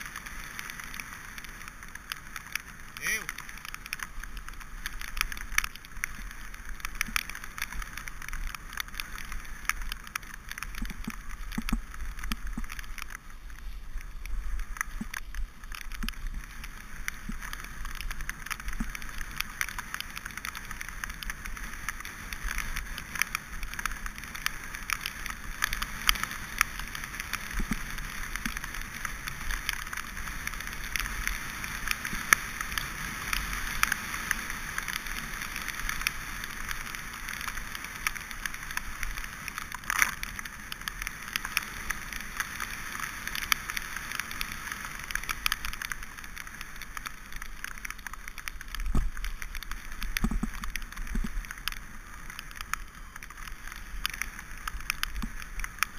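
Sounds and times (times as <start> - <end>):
bike tyres hissing on wet mud: 0.0 - 55.9
grit clicks and knocks: 3.3 - 13.2, 45.1 - 55.9.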